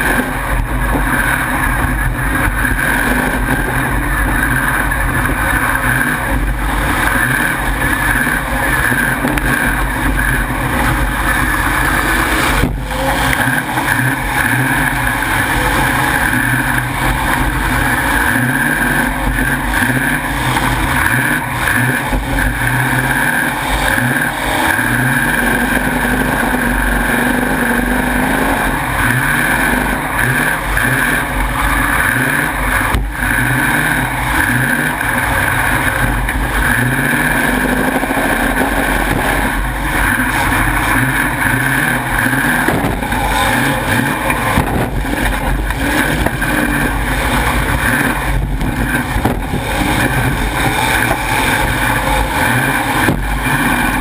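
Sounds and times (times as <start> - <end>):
car engine revving loudly: 0.0 - 54.0
sharp bang: 42.5 - 46.6.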